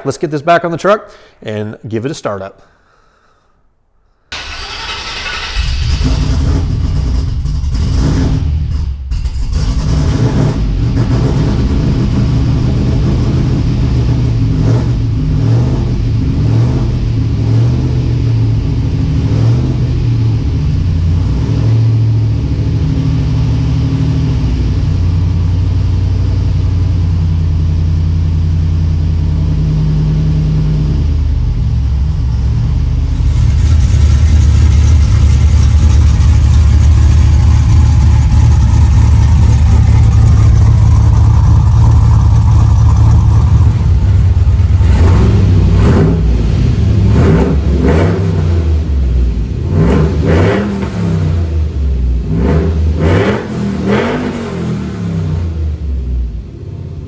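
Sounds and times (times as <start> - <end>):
engine cranking: 4.3 - 8.0
choppy low engine idle: 22.0 - 47.1.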